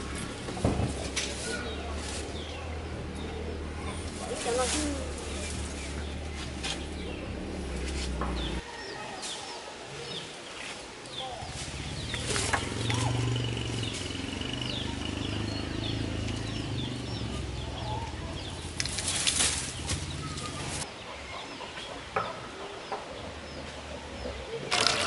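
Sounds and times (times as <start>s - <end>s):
small birds chirping: 0.0s - 24.8s
chickens clucking: 19.8s - 24.7s.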